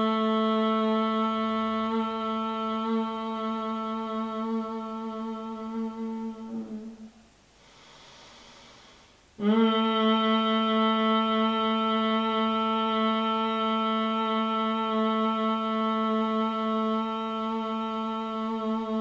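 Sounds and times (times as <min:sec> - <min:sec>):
woman humming: 0:00.0 - 0:07.3, 0:09.4 - 0:19.0
soft in-breath through nose: 0:07.5 - 0:09.3.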